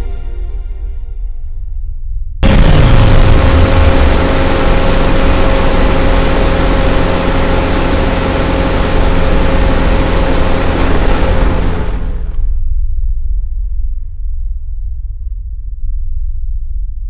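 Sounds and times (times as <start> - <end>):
dense energy beam noise: 2.4 - 12.4
low boom dropping in pitch: 2.4 - 12.4
held low hum: 2.4 - 16.9.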